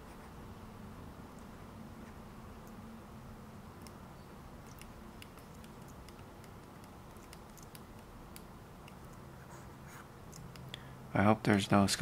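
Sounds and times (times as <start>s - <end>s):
low steady hum: 0.0s - 12.0s
computer keys clicking: 3.8s - 4.0s, 4.6s - 9.2s.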